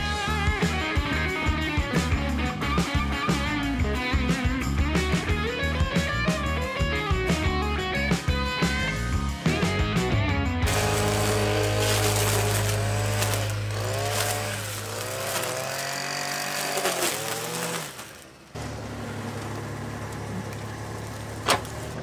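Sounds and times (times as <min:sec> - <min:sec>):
brush cutter engine: 0:10.6 - 0:22.0
mini excavator engine: 0:10.6 - 0:22.0.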